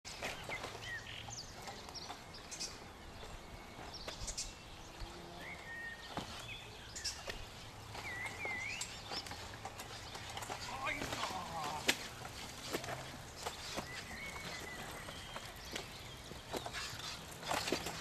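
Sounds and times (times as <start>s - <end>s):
birds chirping and whistling: 0.1s - 18.0s.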